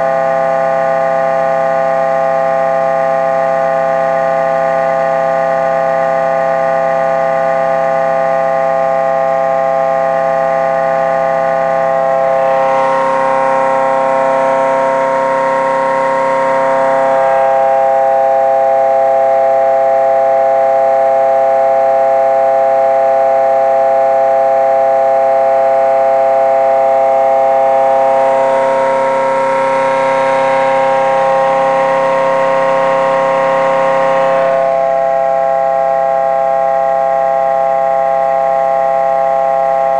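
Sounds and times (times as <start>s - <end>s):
motor pitched whine: 9.5s - 39.9s.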